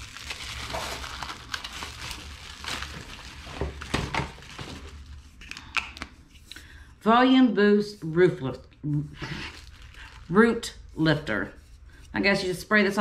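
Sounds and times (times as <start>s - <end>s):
packaging rustling and crinkling: 0.0s - 6.2s, 9.2s - 10.9s.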